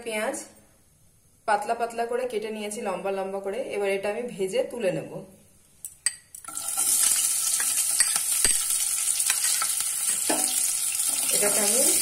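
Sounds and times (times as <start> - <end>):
onions sizzling in hot oil: 6.4 - 12.0.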